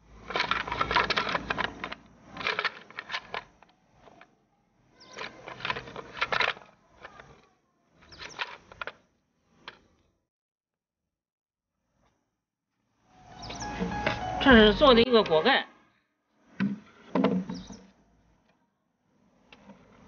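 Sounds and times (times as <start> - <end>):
wooden stool parts clacking: 0.2 - 4.2, 5.0 - 7.3, 16.6 - 17.9.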